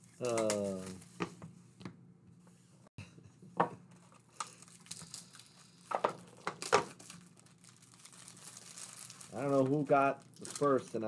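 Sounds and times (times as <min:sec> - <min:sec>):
card packs tapping and rustling: 0:00.2 - 0:01.4, 0:05.8 - 0:11.0.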